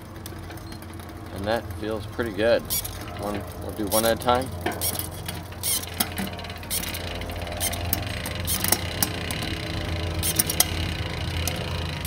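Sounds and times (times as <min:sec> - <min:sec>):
bicycle chain running: 0:00.0 - 0:12.0.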